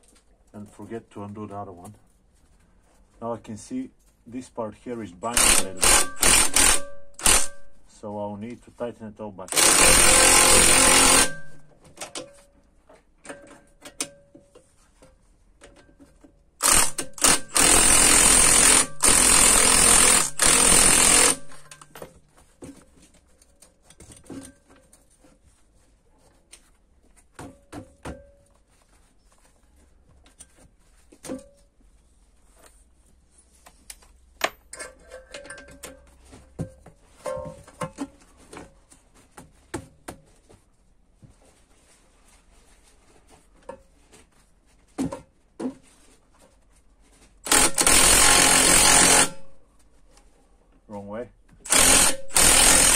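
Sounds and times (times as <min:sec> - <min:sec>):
cordless power ratchet spinning: 0:05.4 - 0:07.6, 0:09.5 - 0:11.6, 0:16.6 - 0:21.8, 0:47.4 - 0:49.5, 0:51.6 - 0:52.9.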